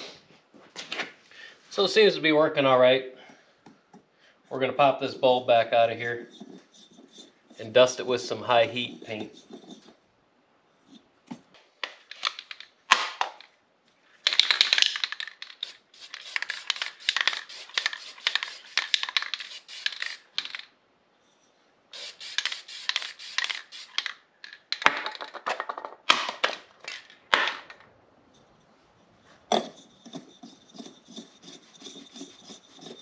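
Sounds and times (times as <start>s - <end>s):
spray paint can hissing: 14.5s - 20.6s, 21.9s - 24.2s.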